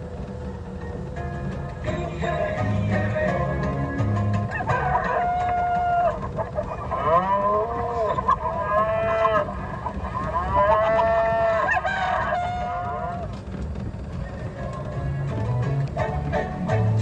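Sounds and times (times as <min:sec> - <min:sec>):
cow mooing: 0:04.5 - 0:13.2.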